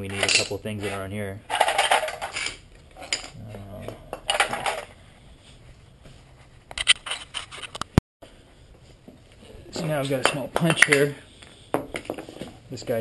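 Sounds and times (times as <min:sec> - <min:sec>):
tools clinking in metal tray: 0:00.0 - 0:03.4.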